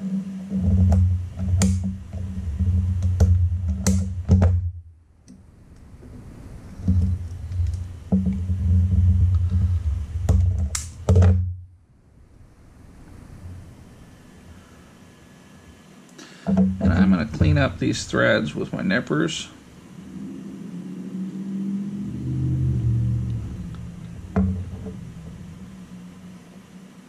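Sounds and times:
low steady hum: 0.0s - 27.0s
wire stripper clicking and snapping: 3.0s - 4.1s, 10.3s - 11.3s.

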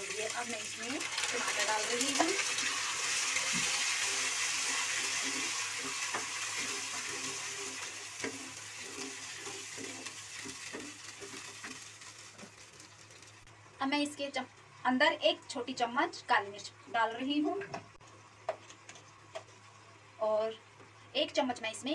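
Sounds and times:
puree sizzling in hot oil: 0.0s - 13.5s.

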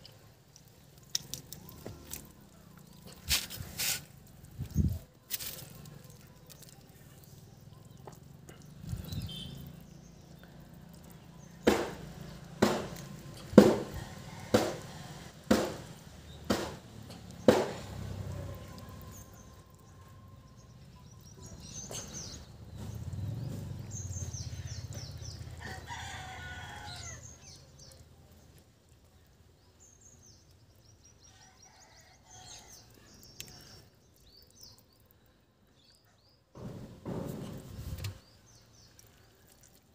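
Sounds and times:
small birds chirping: 0.0s - 13.6s, 16.0s - 36.6s, 37.5s - 39.9s
sharp knocks: 11.6s - 14.9s, 15.5s - 18.0s, 36.6s - 38.2s
rooster crowing: 25.6s - 27.3s.

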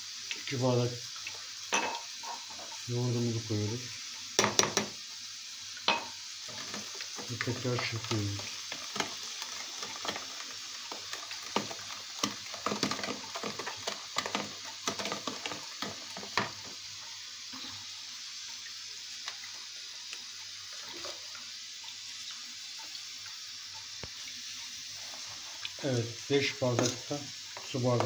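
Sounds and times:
faint steady hiss: 0.0s - 28.0s.

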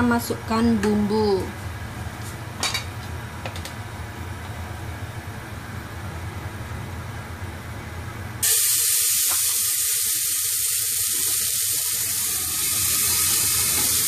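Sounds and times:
spice paste sizzling in hot oil: 8.4s - 14.0s.

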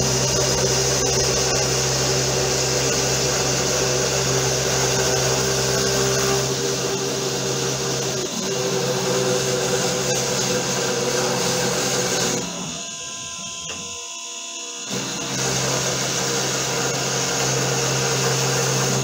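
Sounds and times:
low motor hum: 0.0s - 14.2s
router cutting plywood: 0.0s - 19.0s
router spindle whine: 0.0s - 19.0s.

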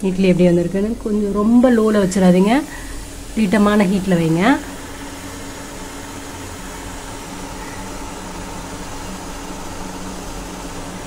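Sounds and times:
faint steady hum: 0.0s - 11.0s
gas stove burner hissing: 0.0s - 11.0s.

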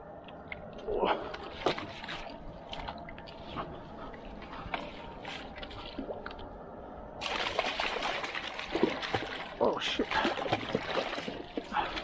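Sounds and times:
fish splashing in water: 7.2s - 12.0s.

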